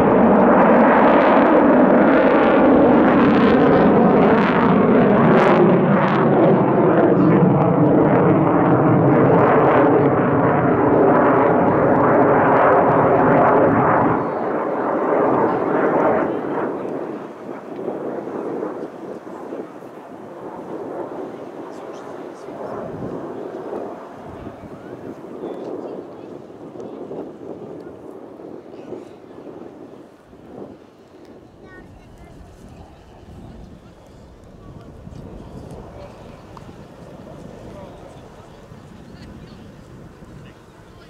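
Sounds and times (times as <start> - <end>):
fighter jet roaring overhead: 0.0 - 41.0.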